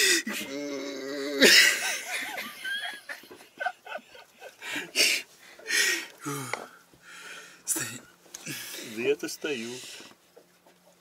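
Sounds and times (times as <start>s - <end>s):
men laughing: 1.4s - 6.4s.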